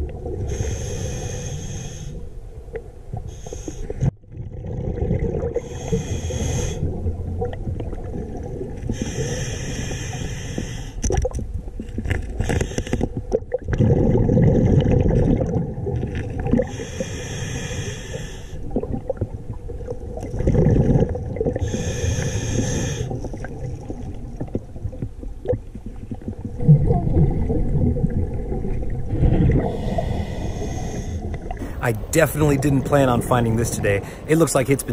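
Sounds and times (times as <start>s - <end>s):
regulator hissing inhalations: 0.5s - 2.2s, 3.3s - 4.0s, 5.6s - 6.9s, 9.0s - 11.0s, 16.7s - 18.6s, 21.6s - 23.1s, 29.7s - 31.8s
exhaled bubbles gushing: 4.0s - 9.2s, 11.1s - 16.9s, 18.6s - 22.0s, 22.6s - 34.9s.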